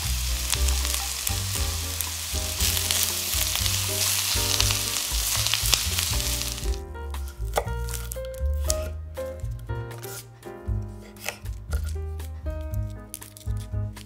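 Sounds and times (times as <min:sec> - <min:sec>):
food sizzling in hot oil: 0:00.0 - 0:06.8
soft background music with bass: 0:00.0 - 0:14.0.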